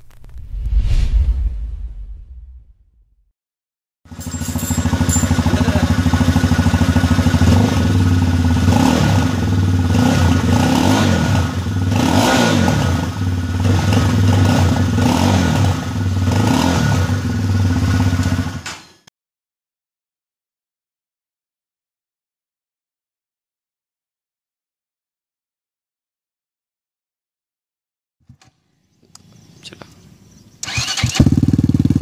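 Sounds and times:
motorcycle engine idling and revving: 4.1s - 19.1s, 30.3s - 32.0s.

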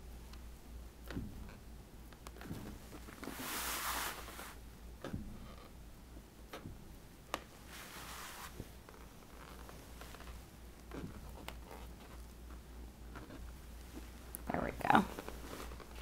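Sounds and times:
soft hissing rushes: 3.1s - 4.7s, 7.6s - 8.8s.

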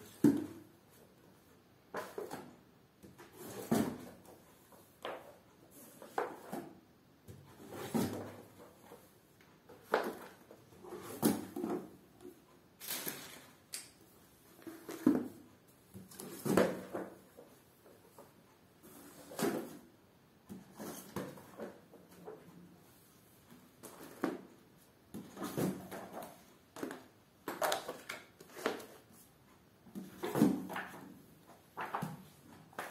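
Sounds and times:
books thudding on concrete floor: 0.1s - 0.6s, 3.3s - 4.3s, 7.3s - 8.7s, 11.0s - 12.0s, 16.1s - 17.2s, 25.1s - 29.0s, 30.0s - 31.1s, 31.8s - 32.9s.

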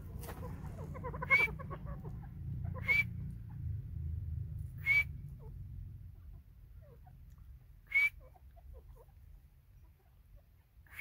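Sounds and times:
low rumble: 0.0s - 7.6s
rising whistle bird calls: 1.2s - 1.5s, 2.8s - 3.2s, 4.8s - 5.2s, 7.8s - 8.2s.

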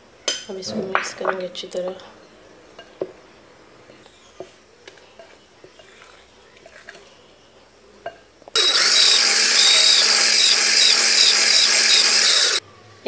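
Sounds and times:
electric hand blender running: 8.6s - 12.6s.

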